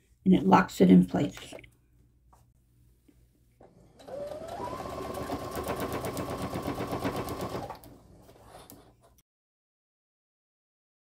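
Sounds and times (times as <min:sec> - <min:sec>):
sewing machine stitching: 0:03.6 - 0:09.0.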